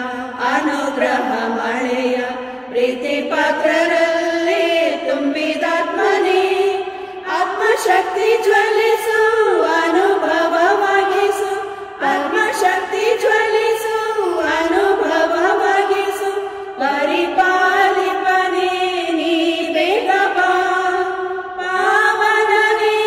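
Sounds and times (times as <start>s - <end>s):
women's choir singing a hymn: 0.0s - 23.0s.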